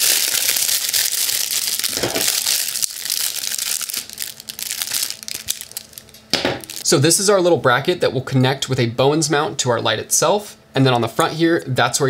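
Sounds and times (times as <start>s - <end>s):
plastic wrapping crinkling: 0.0s - 6.8s.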